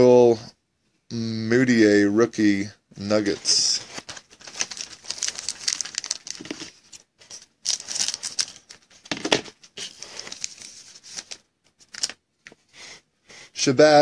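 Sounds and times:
cards rustling and clicking: 3.3 - 12.6
wrapper crinkling and tearing: 3.5 - 12.2.

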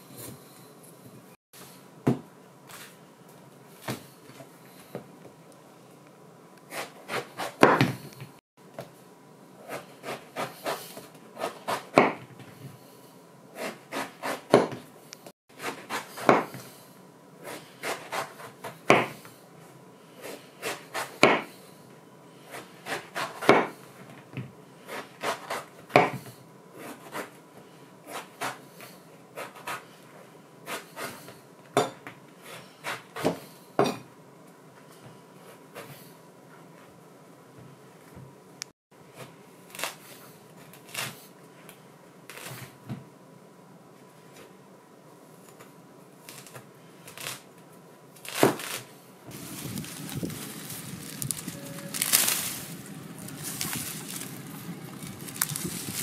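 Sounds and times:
knife chopping: 6.7 - 8.0, 11.4 - 12.3, 13.6 - 14.8, 15.6 - 16.7, 17.4 - 19.2, 20.2 - 21.5, 22.5 - 23.8.

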